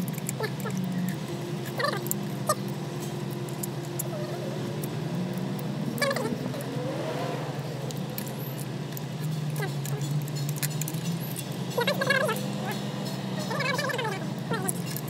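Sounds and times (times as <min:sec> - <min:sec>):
steady low hum: 0:00.0 - 0:15.0
light metallic clicks and taps: 0:07.9 - 0:13.5.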